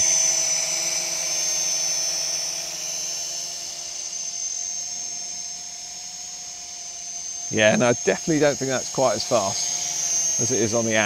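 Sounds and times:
toy drone buzzing: 0:00.0 - 0:11.0.

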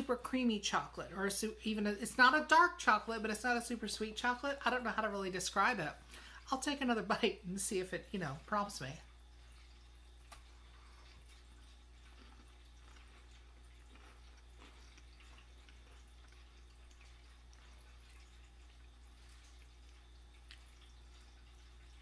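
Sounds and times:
steady low hum: 0:00.0 - 0:22.0
person chewing biscuit: 0:09.2 - 0:22.0.

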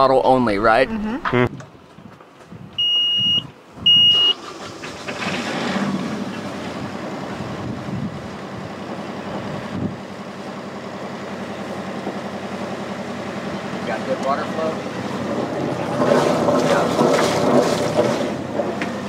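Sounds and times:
alarm buzzer beeps: 0:02.8 - 0:04.4
diesel engine starting and idling: 0:02.8 - 0:19.0.

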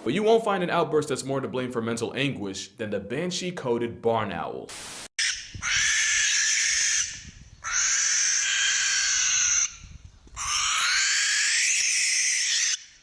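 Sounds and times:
barn owl screeching: 0:05.2 - 0:13.0.

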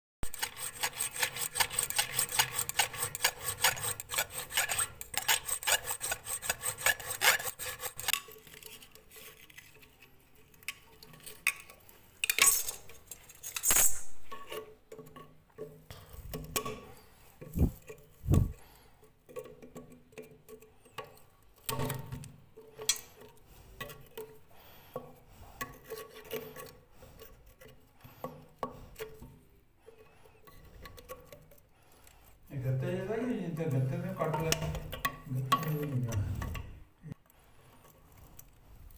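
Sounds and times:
hand tools knocking and scraping: 0:00.2 - 0:10.0, 0:10.6 - 0:18.7, 0:32.7 - 0:36.8
metal rasping strokes: 0:00.2 - 0:10.2, 0:16.2 - 0:18.8, 0:29.9 - 0:36.8.

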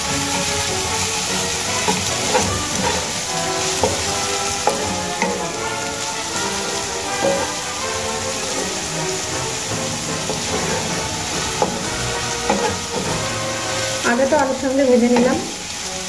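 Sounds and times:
wooden spatula stirring: 0:00.0 - 0:15.7
potatoes sizzling in oil: 0:00.0 - 0:16.0
spatula knocking against pan: 0:01.8 - 0:05.6, 0:10.2 - 0:13.3.

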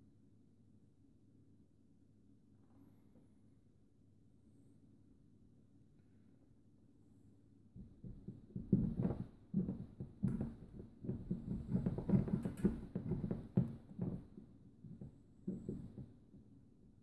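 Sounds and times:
soft knocks and rubbing on metal: 0:07.8 - 0:16.5.

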